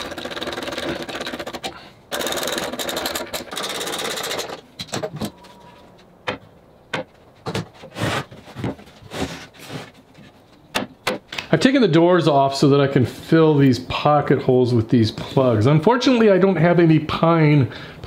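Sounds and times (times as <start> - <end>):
knocks and clunks of wood: 4.8 - 11.3.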